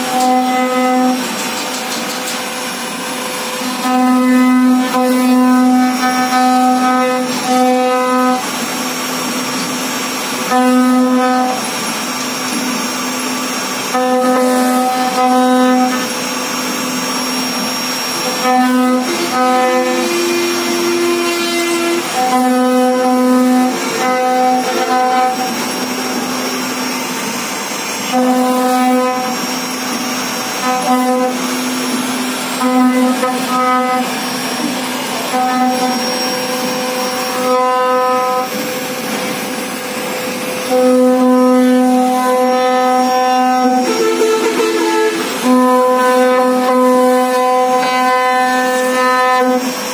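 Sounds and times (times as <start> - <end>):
router spindle motor whine: 0.0 - 49.9.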